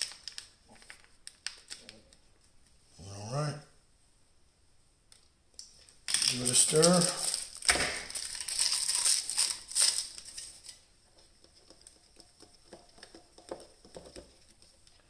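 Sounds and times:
tapioca pearls rattling in cup: 0:06.1 - 0:14.7.

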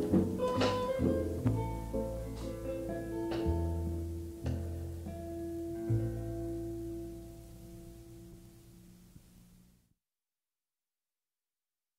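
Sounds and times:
plucked string notes: 0:00.0 - 0:08.5
held low bass note: 0:00.0 - 0:08.6.

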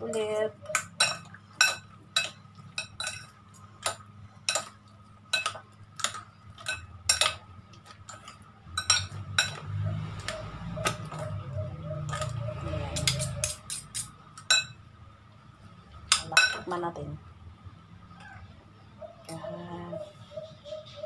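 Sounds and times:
cutlery clinking on glass bowl: 0:00.7 - 0:07.4, 0:08.0 - 0:09.7, 0:13.0 - 0:14.8.

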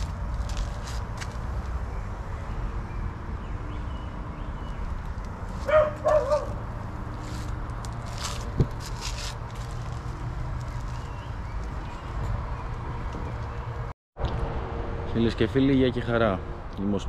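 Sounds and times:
dog yelping: 0:05.6 - 0:06.6.

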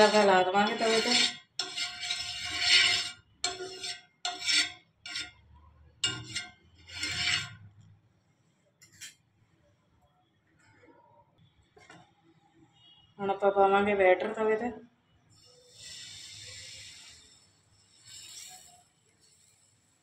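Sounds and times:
metal spoon scraping pan: 0:00.0 - 0:07.9, 0:15.6 - 0:19.6.

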